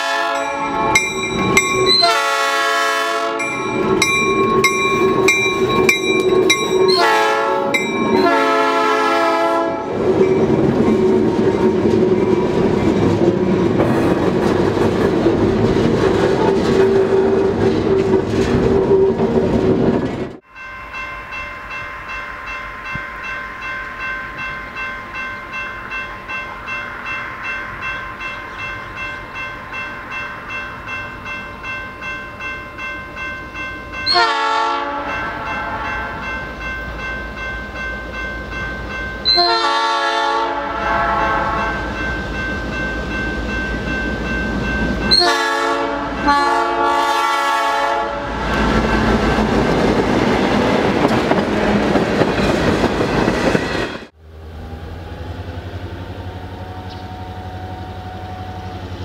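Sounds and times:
locomotive horn: 0:00.0 - 0:00.9, 0:01.9 - 0:03.6, 0:06.9 - 0:10.0, 0:34.1 - 0:36.2, 0:39.2 - 0:41.9, 0:45.1 - 0:48.5
crossing bell ringing: 0:00.0 - 0:13.9, 0:20.4 - 0:54.1, 0:56.2 - 0:59.0
distant locomotive engine drone: 0:00.0 - 0:59.0
locomotive rumbling past: 0:00.0 - 0:59.0.

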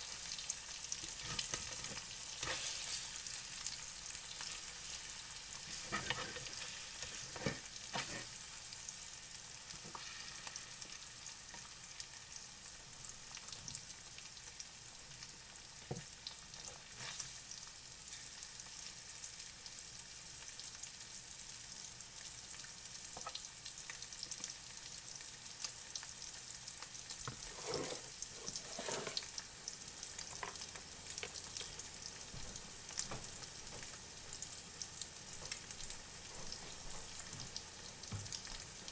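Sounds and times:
eggs sizzling in a frying pan: 0:00.0 - 0:38.9
spatula scraping metal pan: 0:05.7 - 0:08.4, 0:27.4 - 0:29.3.

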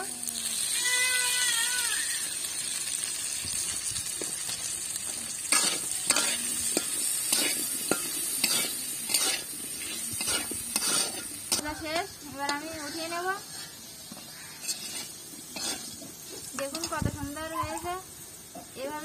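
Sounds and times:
potatoes sizzling in hot oil: 0:00.0 - 0:19.0
metal spatula scraping pan: 0:05.5 - 0:17.1.

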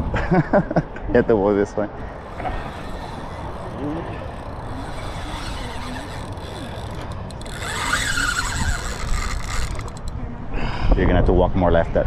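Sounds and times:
wind on microphone: 0:02.0 - 0:12.0
fishing reel drag squealing: 0:02.2 - 0:10.1.

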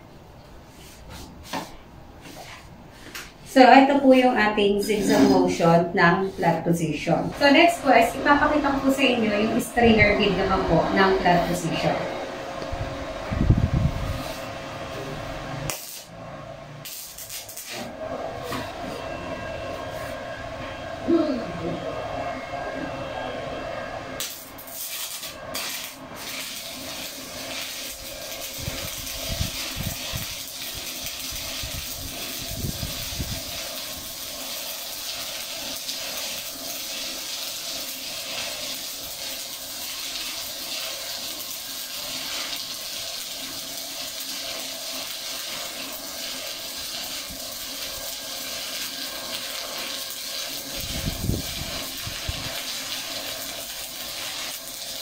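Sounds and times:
welding arc crackling hiss: 0:00.7 - 0:12.0, 0:13.8 - 0:18.7, 0:24.2 - 0:55.0
welding arc strikes: 0:14.2 - 0:18.0, 0:24.2 - 0:55.0.

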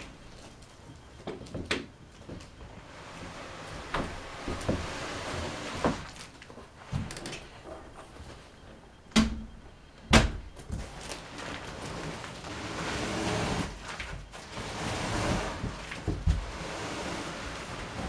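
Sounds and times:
box scraping across floor: 0:02.7 - 0:06.3, 0:10.8 - 0:18.0.

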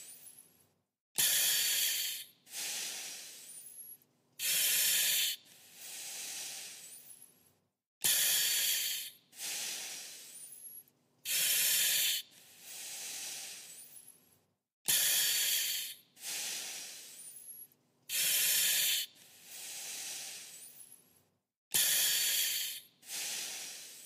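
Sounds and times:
mask valve hiss: 0:01.2 - 0:03.4, 0:04.4 - 0:06.9, 0:08.0 - 0:10.3, 0:11.3 - 0:14.0, 0:14.9 - 0:17.2, 0:18.1 - 0:20.8, 0:21.8 - 0:24.0
breathing through an oxygen mask: 0:01.2 - 0:03.8, 0:04.4 - 0:07.2, 0:08.0 - 0:10.6, 0:11.3 - 0:14.1, 0:14.9 - 0:17.5, 0:18.1 - 0:21.0, 0:21.7 - 0:24.0.

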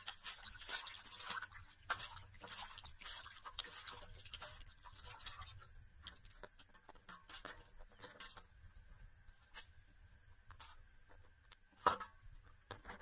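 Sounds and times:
chicken washed by hand in water: 0:00.0 - 0:09.8.

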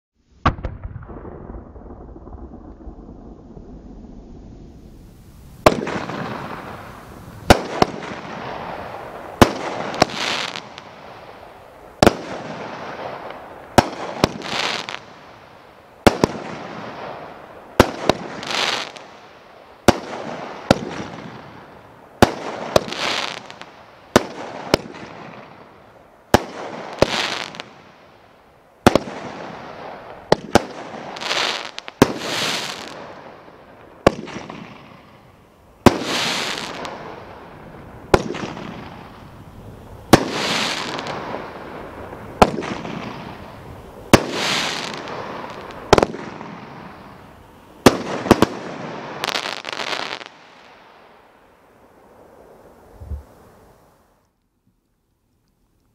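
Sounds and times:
firework shots banging: 0:05.6 - 0:06.8, 0:38.1 - 0:39.2, 0:40.1 - 0:41.5, 0:42.4 - 0:47.0.

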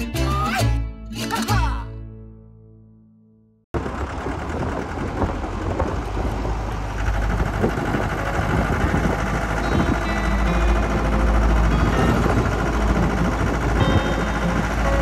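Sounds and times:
road noise rush: 0:03.8 - 0:15.0
vehicle engine running: 0:03.8 - 0:15.0.

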